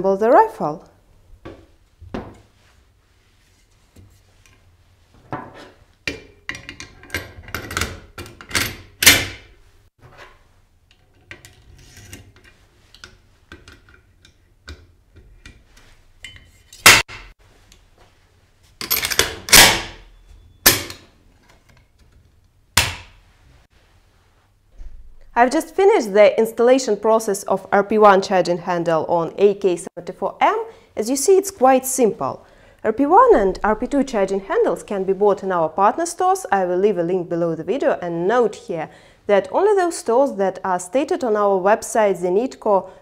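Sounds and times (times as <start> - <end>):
sharp loud metal snaps: 7.8 - 9.5, 16.8 - 17.3, 18.9 - 21.0, 22.8 - 23.2.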